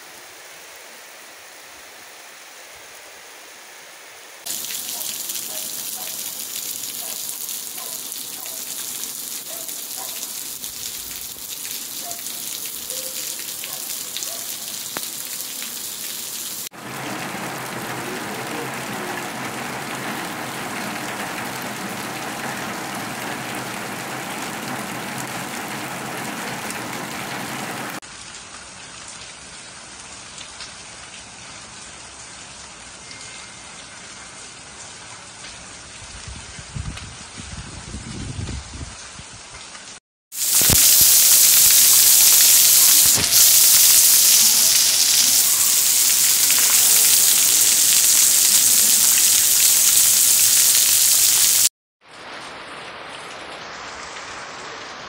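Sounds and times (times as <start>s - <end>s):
heavy rain on roofs and pavement: 0.0s - 55.0s.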